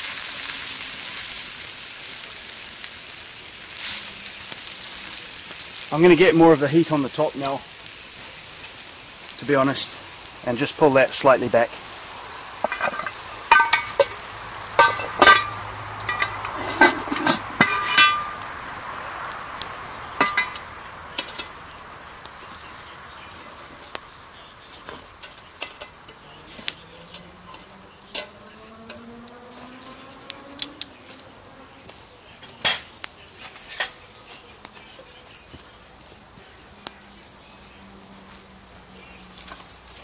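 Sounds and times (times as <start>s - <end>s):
wood fire crackling and popping: 0.0s - 40.0s
cast iron pot lid clanking: 12.6s - 14.2s, 14.8s - 18.4s, 20.2s - 21.5s.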